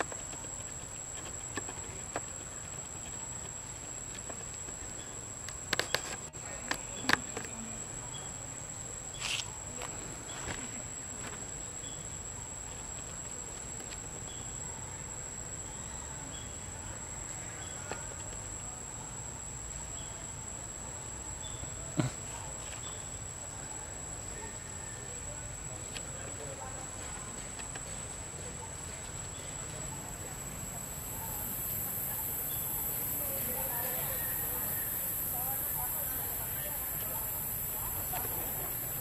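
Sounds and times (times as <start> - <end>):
high-pitched insect drone: 29.9 - 39.0.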